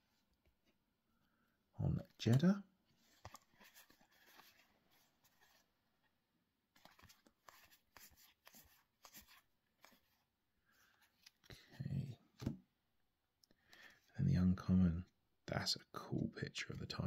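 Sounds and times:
trading cards rustling and clicking: 2.0 - 5.7, 6.7 - 11.8.

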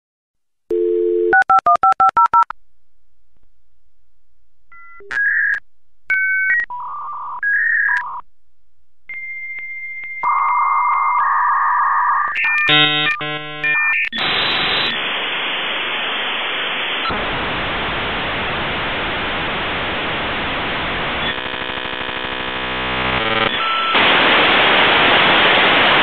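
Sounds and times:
dial tone: 0.7 - 2.5
touch-tone digits: 0.7 - 2.5.

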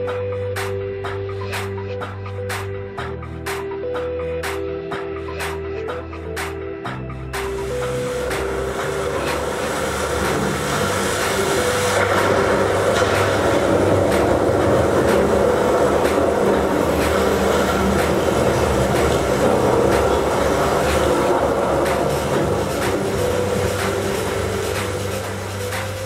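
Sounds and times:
miniature train rumbling: 7.4 - 26.0.

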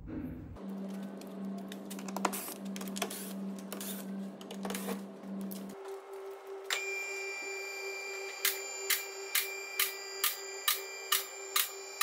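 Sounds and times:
high steady tone: 5.8 - 12.0.

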